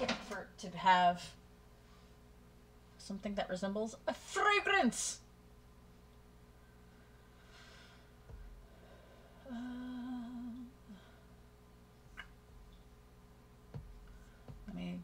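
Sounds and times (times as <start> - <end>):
woman humming: 9.3 - 11.2.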